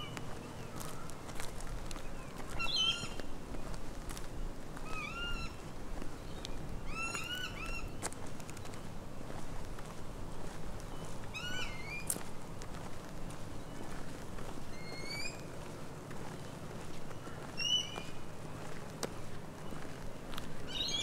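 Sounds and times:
footsteps on bush track: 0.0 - 21.0
bird calling whining notes: 2.6 - 3.2, 4.9 - 5.6, 11.3 - 12.1, 14.7 - 15.5, 17.2 - 18.2, 20.7 - 21.0.

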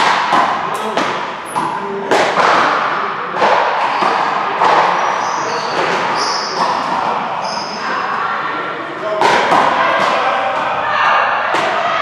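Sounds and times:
ball thudding in echoing hall: 0.0 - 12.0
sneakers squeaking on court: 3.9 - 8.2.

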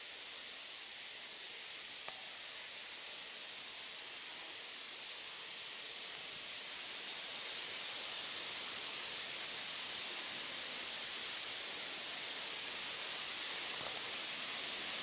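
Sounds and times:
outdoor background hiss: 0.0 - 15.0
faint click: 2.0 - 2.2.

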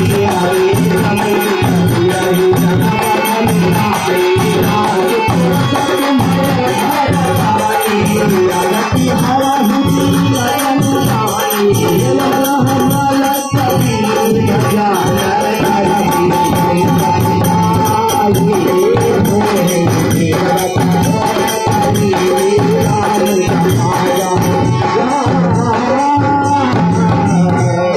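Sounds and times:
dholak drum rhythm: 0.0 - 27.9
fast rattling percussion: 0.0 - 27.9
harmonium chords: 0.0 - 27.9.

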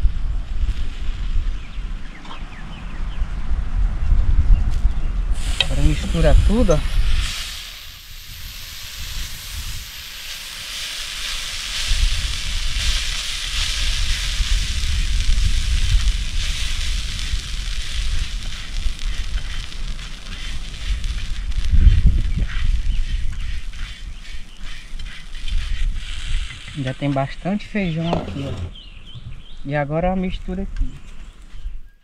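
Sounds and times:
wind on microphone: 0.0 - 31.9
food sizzling in a pan: 5.4 - 27.1.

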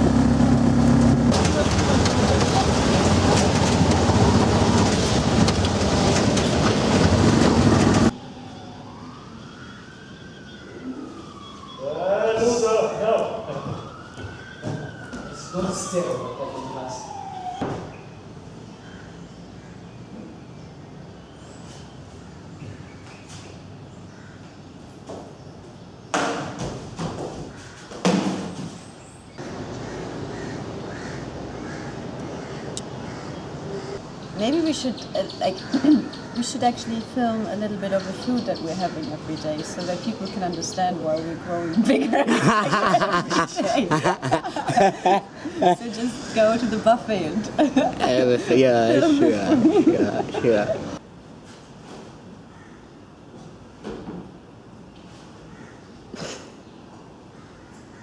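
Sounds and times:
busy street noise: 0.0 - 8.4, 29.4 - 51.1.

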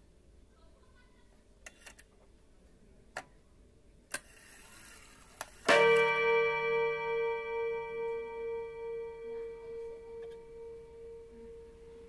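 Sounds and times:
clock gong ringing: 5.7 - 12.0.

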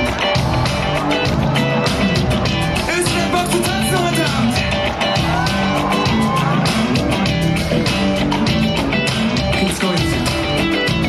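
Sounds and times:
drum beat: 0.0 - 11.0
electric guitar: 0.0 - 11.0
live pop band through speakers: 0.0 - 11.0
man singing: 2.8 - 4.7, 9.0 - 11.0.

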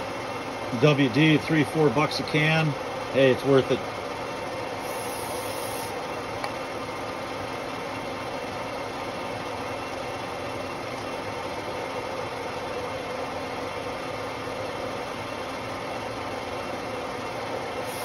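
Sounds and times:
metal lathe running: 0.0 - 18.0
aerosol spray hiss: 4.8 - 6.0, 17.8 - 18.0.

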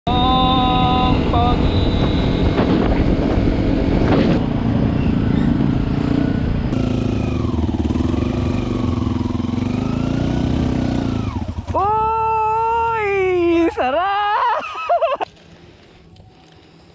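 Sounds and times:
motorcycle engine revving: 0.2 - 13.3.

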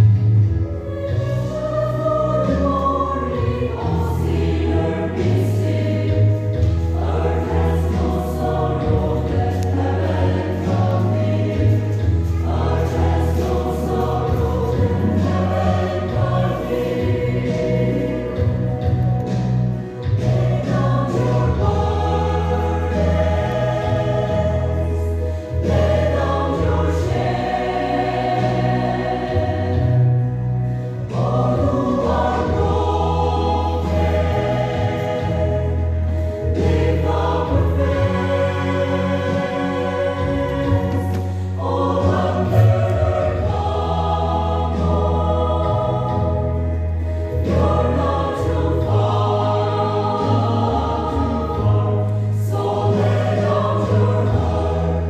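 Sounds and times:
mixed choir singing: 0.0 - 55.0.

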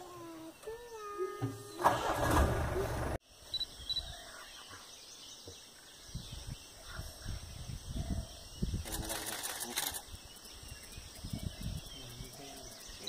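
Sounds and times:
bird chirps: 0.1 - 1.9, 3.4 - 13.0
vehicle engine starting: 1.6 - 3.2.

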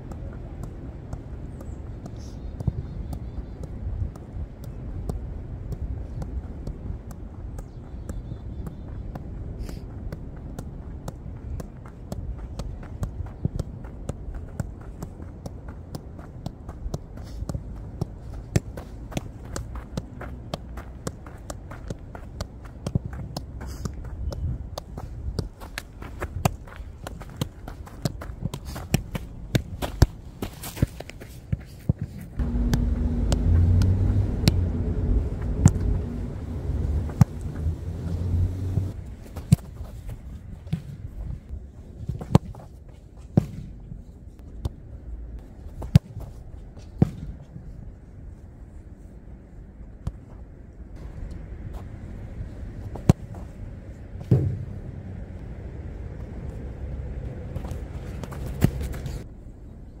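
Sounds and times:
football boots kicking a ball: 10.1 - 40.0, 42.0 - 43.8, 53.0 - 53.5, 54.2 - 54.8, 57.5 - 59.2
low engine rumble: 32.4 - 39.2
steady low rumble: 32.4 - 42.0, 43.7 - 60.0
football kicked: 47.0 - 47.5, 54.2 - 54.8, 57.6 - 59.2.

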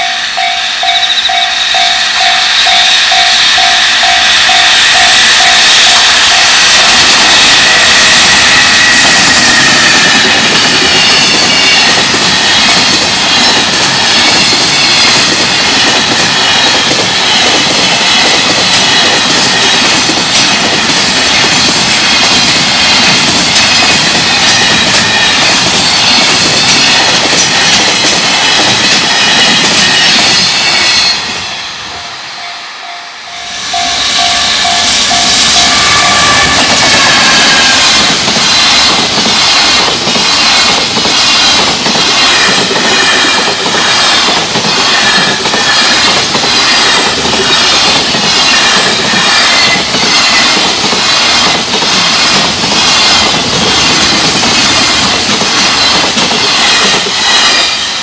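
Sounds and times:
crossing bell dinging: 0.0 - 20.1, 23.5 - 38.4
freight train wheels clattering: 0.0 - 58.0.

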